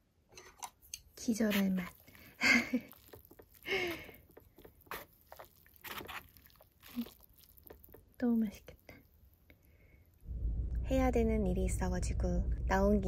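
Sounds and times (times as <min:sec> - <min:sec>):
slurping noodles: 0:01.5 - 0:08.0.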